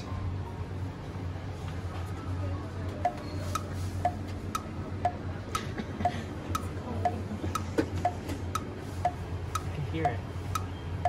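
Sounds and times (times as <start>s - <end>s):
low steady hum: 0.0s - 11.0s
clock ticking: 3.0s - 11.0s.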